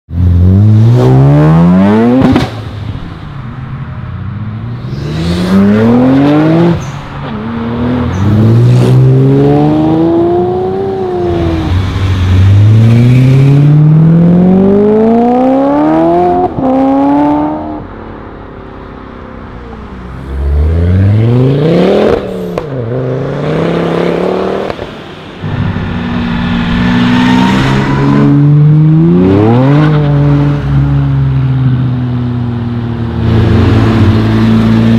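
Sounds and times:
sports cars accelerating hard: 4.7 - 17.8, 20.2 - 31.1.

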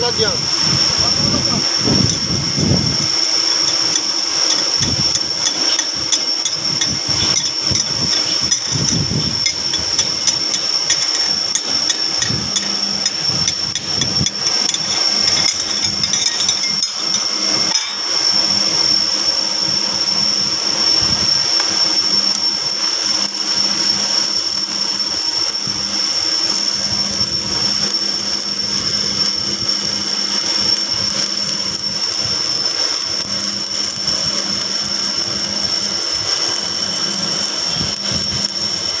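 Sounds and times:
high-pitched whine: 0.0 - 39.0
welding arc crackling: 0.0 - 39.0.

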